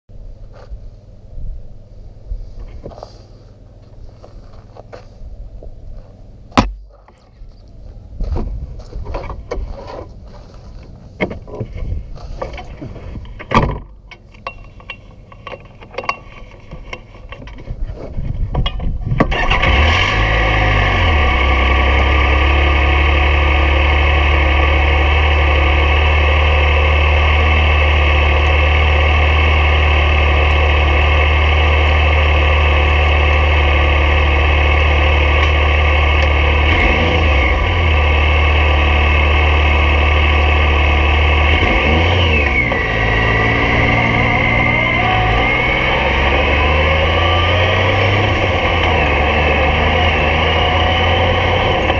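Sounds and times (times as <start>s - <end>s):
engine starting and idling: 19.2s - 51.9s.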